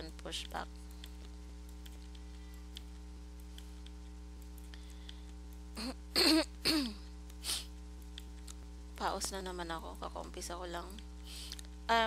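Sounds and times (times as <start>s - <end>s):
electrical hum: 0.0s - 12.0s
computer mouse clicks: 0.4s - 5.6s, 8.0s - 8.6s.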